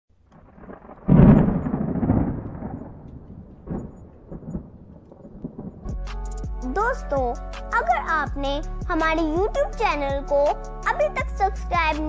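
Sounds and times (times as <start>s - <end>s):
rain: 0.1s - 5.9s
thunderclap rumbling: 0.3s - 7.5s
rolls of thunder: 0.4s - 6.0s.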